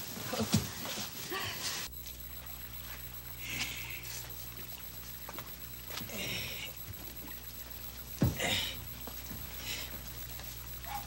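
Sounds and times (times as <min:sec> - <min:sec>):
insects trilling: 0:00.0 - 0:11.0
low steady hum: 0:00.0 - 0:11.0.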